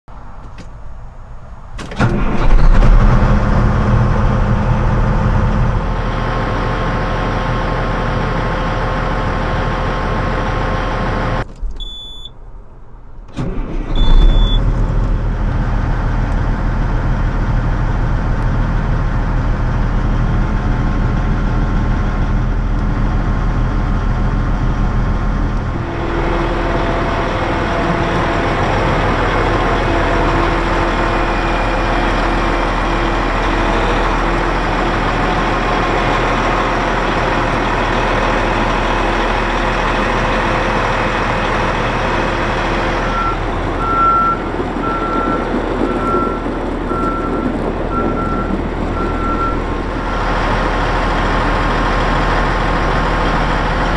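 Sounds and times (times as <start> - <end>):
diesel engine running: 1.0 - 53.9
short high beeps: 11.8 - 12.4, 14.0 - 14.6.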